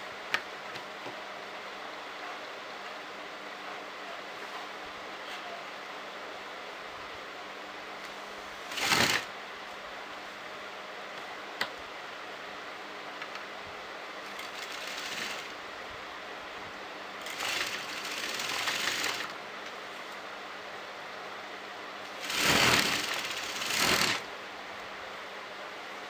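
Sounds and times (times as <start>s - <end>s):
sewing machine stitching: 8.7s - 9.3s, 14.3s - 15.6s, 17.2s - 19.4s, 22.1s - 24.3s.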